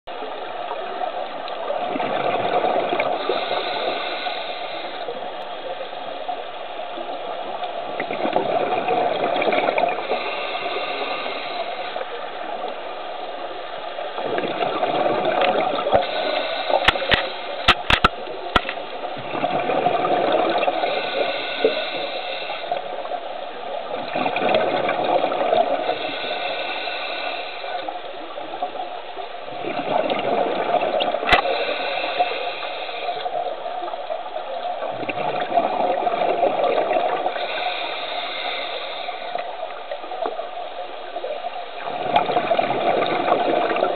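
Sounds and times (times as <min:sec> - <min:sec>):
exhaled bubbles rumbling: 0:00.4 - 0:03.8, 0:07.0 - 0:11.3, 0:14.1 - 0:21.1, 0:23.8 - 0:26.2, 0:28.3 - 0:31.8, 0:33.4 - 0:37.4, 0:39.8 - 0:43.9
regulator hissing inhalation: 0:03.1 - 0:05.2, 0:10.0 - 0:12.1, 0:15.8 - 0:17.7, 0:20.7 - 0:22.8, 0:25.8 - 0:27.9, 0:31.3 - 0:33.4, 0:37.2 - 0:39.6
sharp clicks: 0:16.8 - 0:18.8.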